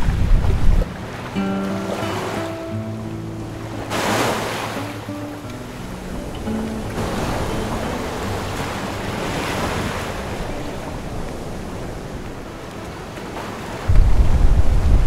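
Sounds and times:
wind buffeting microphone: 0:00.0 - 0:01.2, 0:05.0 - 0:15.0
water splashing along boat hull: 0:00.0 - 0:15.0
wind: 0:00.0 - 0:15.0.

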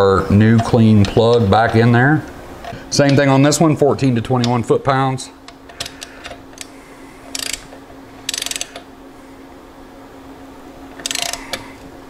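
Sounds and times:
socket wrench ratcheting clicks: 0:07.3 - 0:08.8, 0:11.0 - 0:11.6.

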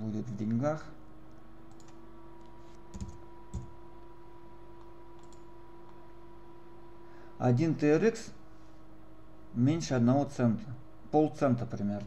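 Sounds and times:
steady hum: 0:00.0 - 0:12.0
keyboard keystrokes and mouse clicks: 0:01.7 - 0:03.7, 0:04.8 - 0:05.5.

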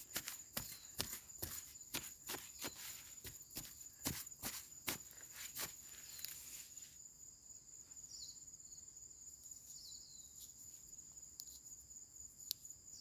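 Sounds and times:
soil clods scattering: 0:00.0 - 0:06.4.

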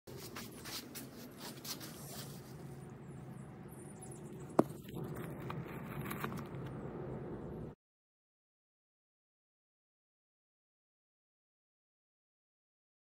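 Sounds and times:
low background hum: 0:00.1 - 0:07.8.

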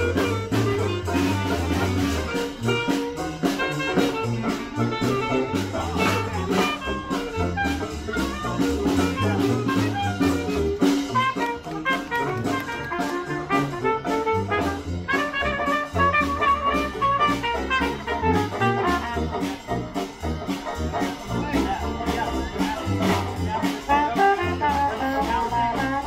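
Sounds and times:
jazz band playing: 0:00.0 - 0:26.0.

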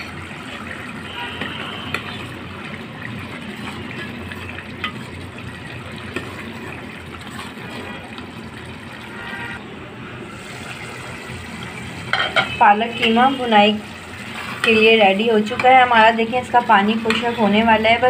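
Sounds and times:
curry bubbling in a pot: 0:00.0 - 0:09.6.

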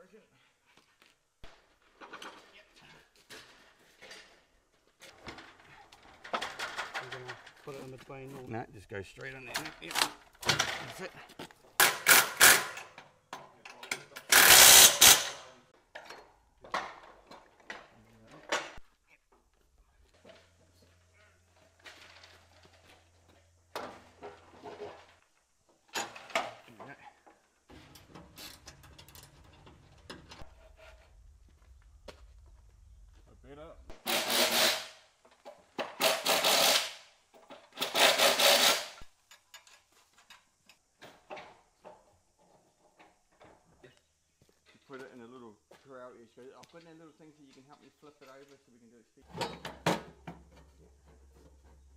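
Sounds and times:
power drill running: 0:14.3 - 0:15.4, 0:34.0 - 0:35.0, 0:36.0 - 0:37.0, 0:37.8 - 0:39.0.

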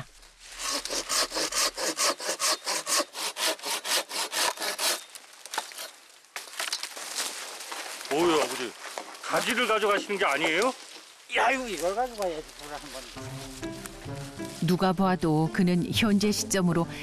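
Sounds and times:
pruning saw cutting branch: 0:00.5 - 0:06.9.

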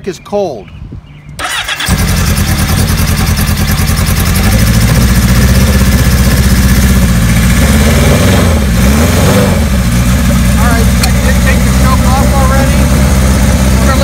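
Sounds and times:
motorcycle engine idling: 0:01.4 - 0:07.8, 0:09.6 - 0:14.0.

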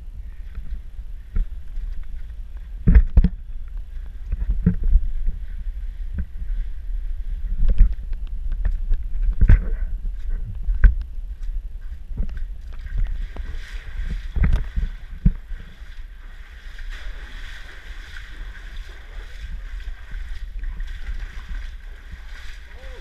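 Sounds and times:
splashing footsteps in water: 0:10.2 - 0:23.0.

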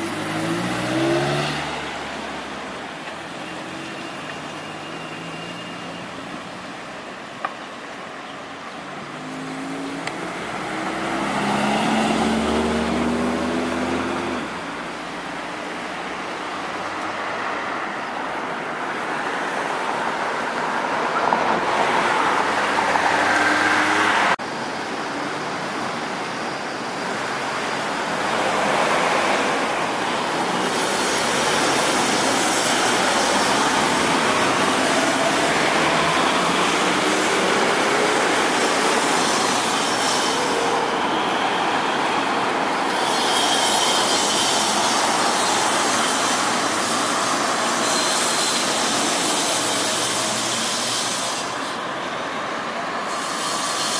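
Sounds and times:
cars passing: 0:00.0 - 0:07.5, 0:08.6 - 0:24.5, 0:27.1 - 0:53.9.

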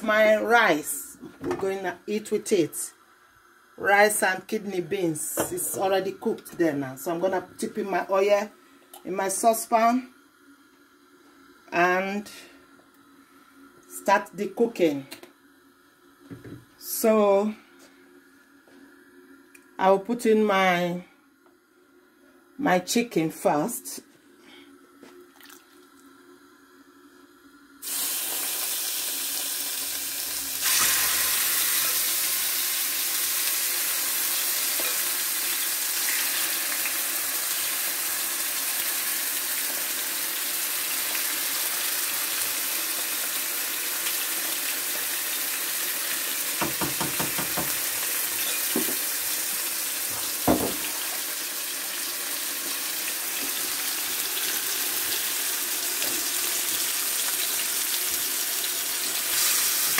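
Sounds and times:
chicken sizzling in hot oil: 0:27.8 - 0:59.9.

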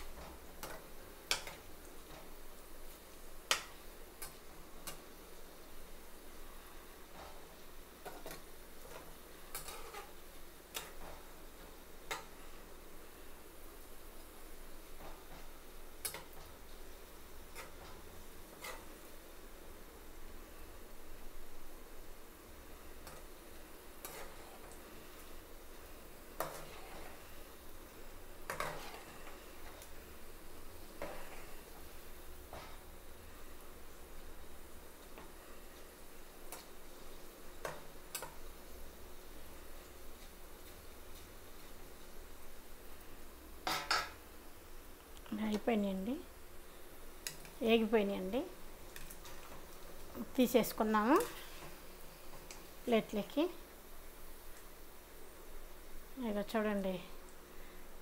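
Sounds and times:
oil sizzling: 0:00.0 - 0:58.0
metal spoon scraping pan: 0:08.0 - 0:11.1, 0:17.5 - 0:18.9, 0:24.0 - 0:24.8, 0:26.4 - 0:27.3, 0:28.5 - 0:29.8.

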